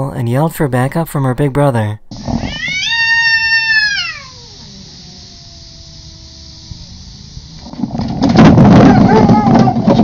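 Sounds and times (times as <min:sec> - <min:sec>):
cat yowling: 0:02.4 - 0:07.0, 0:08.8 - 0:10.0.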